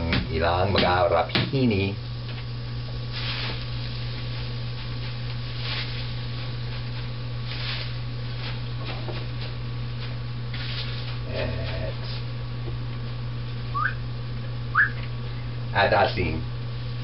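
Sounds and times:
frying pan sizzling: 2.6s - 8.8s
leaves rustling: 3.1s - 8.6s.

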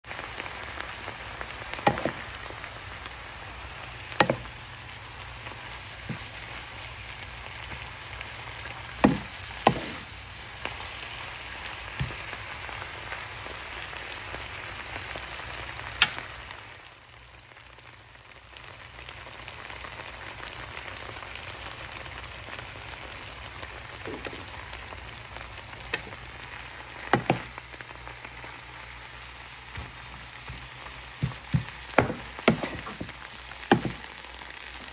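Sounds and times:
vegetables sizzling in a frying pan: 0.0s - 34.9s
wooden spatula knocking on pan: 1.9s - 2.2s, 4.2s - 4.5s, 9.0s - 10.0s, 27.1s - 27.5s, 29.7s - 34.1s.

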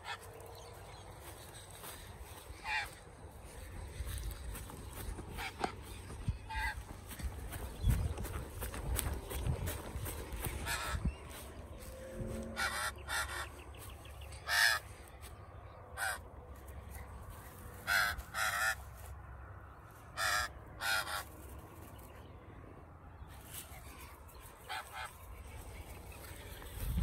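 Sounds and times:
magpie giving harsh calls: 2.6s - 3.0s, 6.4s - 6.8s, 10.4s - 11.0s, 12.6s - 13.5s, 14.4s - 14.8s, 16.0s - 16.2s, 17.8s - 18.8s, 20.1s - 21.3s, 24.7s - 25.1s.

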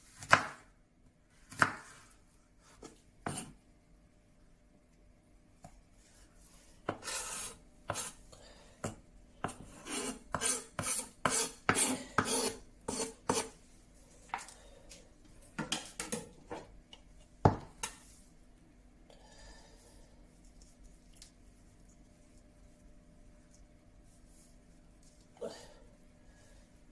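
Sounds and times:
knife slicing on wooden board: 2.8s - 3.5s.

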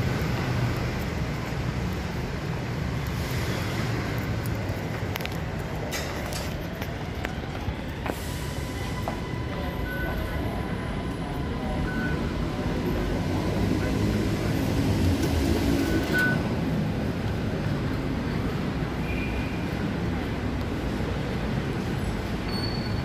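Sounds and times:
station concourse rumble: 0.0s - 23.0s.

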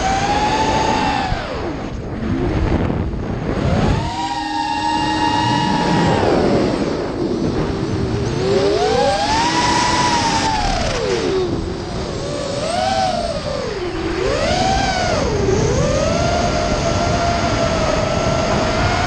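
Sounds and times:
drone motors whining: 0.0s - 19.0s
wind hiss on microphone: 0.0s - 19.0s.

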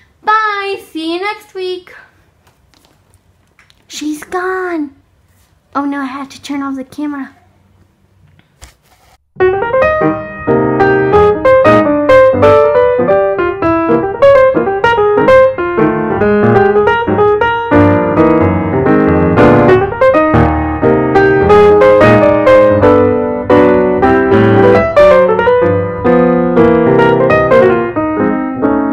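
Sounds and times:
lively piano music: 9.4s - 28.9s.

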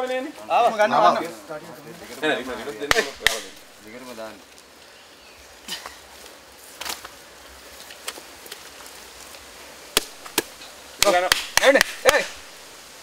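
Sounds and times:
sticks snapping and knocking: 2.9s - 3.6s, 6.7s - 7.2s, 9.9s - 12.4s.

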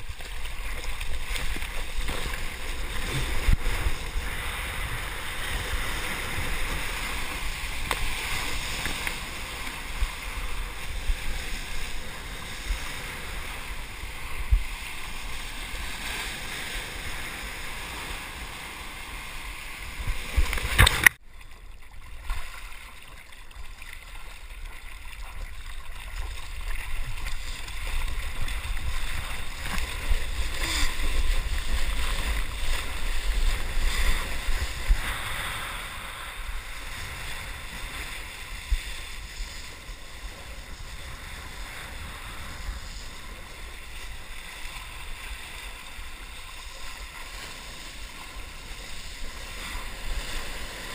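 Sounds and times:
water rushing along surfboard: 0.0s - 50.9s.

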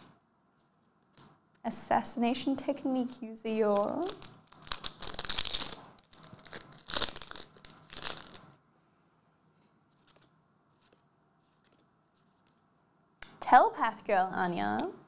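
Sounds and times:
foil wrapper tearing and crinkling: 3.9s - 8.5s.

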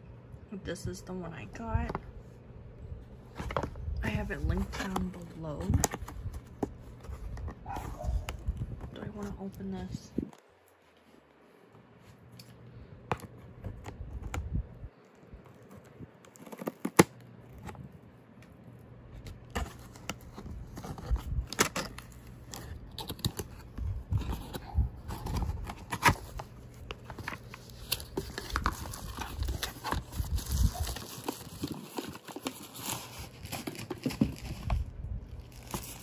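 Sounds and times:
wrapping rustling and crinkling: 3.2s - 12.6s, 13.2s - 36.0s
tape and cardboard flaps tearing: 16.0s - 17.7s.

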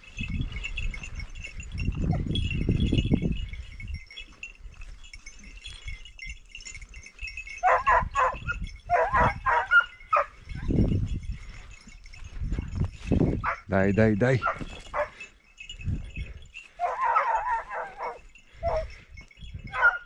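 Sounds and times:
faint high tinkling: 0.0s - 20.0s
hounds yelping barks: 7.6s - 10.8s, 13.4s - 13.7s, 14.4s - 15.4s, 16.6s - 19.0s, 19.7s - 20.0s.

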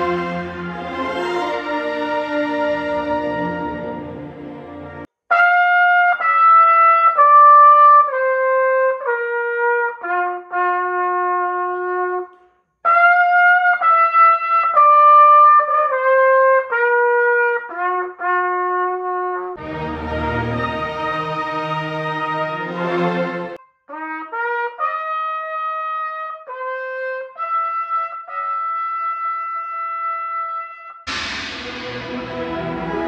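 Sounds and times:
orchestral music: 0.0s - 5.1s, 19.6s - 23.6s, 31.1s - 33.0s
solo trumpet playing: 0.0s - 33.0s.

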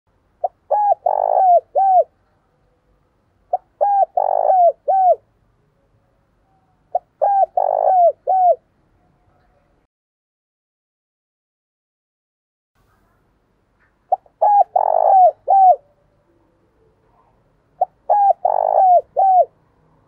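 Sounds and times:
dove cooing: 0.4s - 2.2s, 3.5s - 5.2s, 6.9s - 8.7s, 14.1s - 16.4s, 17.1s - 19.6s.

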